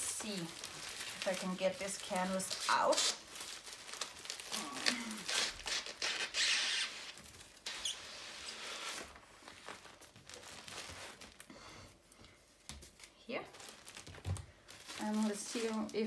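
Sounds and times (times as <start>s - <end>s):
plastic packaging crinkling: 0.0s - 11.5s, 12.8s - 16.0s.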